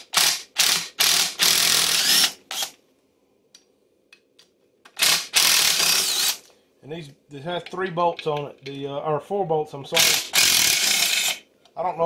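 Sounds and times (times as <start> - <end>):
impact driver bursts: 0.0 - 2.7, 5.0 - 6.4, 10.0 - 11.4.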